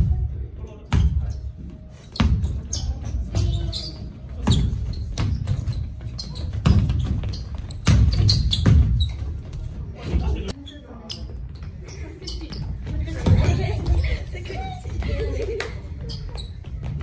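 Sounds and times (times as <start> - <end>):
sneaker squeaks: 0.0 - 17.0
basketball bouncing on court floor: 2.2 - 9.7, 12.5 - 14.1.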